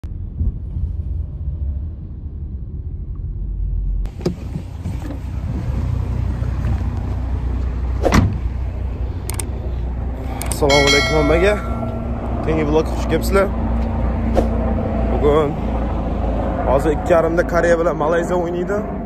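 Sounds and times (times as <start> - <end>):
car road rumble: 0.0 - 18.0.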